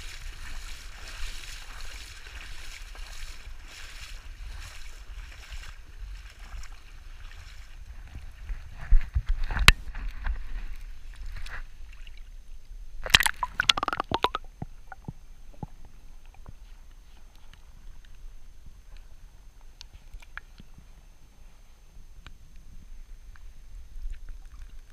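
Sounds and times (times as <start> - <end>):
water sloshing and splashing: 13.0 - 15.7
small ticks: 19.7 - 20.7.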